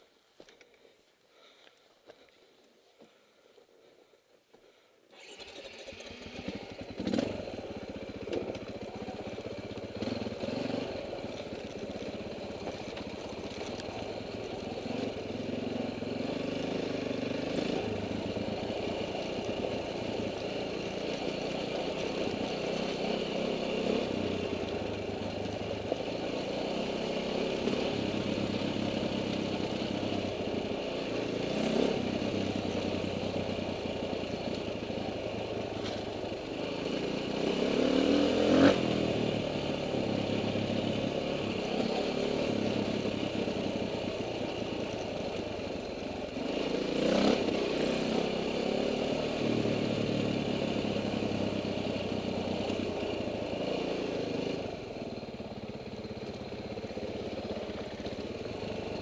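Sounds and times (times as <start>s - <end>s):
dirt bike engine revving: 5.2s - 7.9s, 8.8s - 11.3s, 14.0s - 36.0s, 36.6s - 44.8s, 46.3s - 54.6s.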